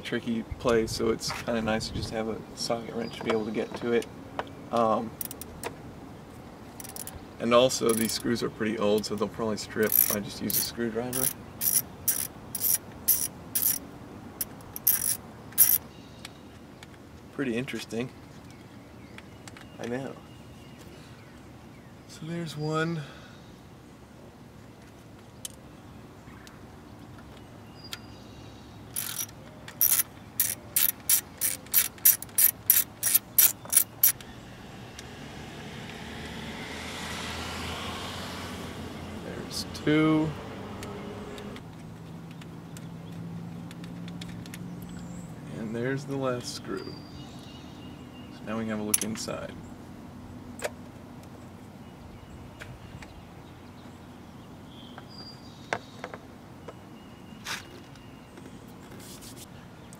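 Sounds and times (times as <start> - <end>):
ratchet wrench clicking: 5.2 - 5.5, 6.8 - 7.2, 7.9 - 8.3, 9.8 - 13.8, 14.4 - 15.8, 29.0 - 34.2.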